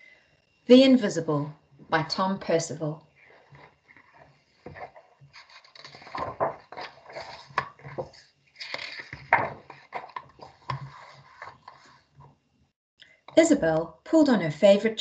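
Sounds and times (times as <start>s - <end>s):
paper pages rustling: 3.2s - 12.3s.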